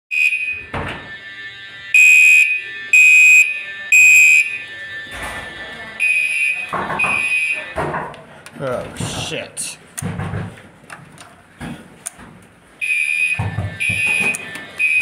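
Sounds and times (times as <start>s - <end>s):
fire alarm horn pulses: 0.1s - 7.8s, 12.8s - 15.0s.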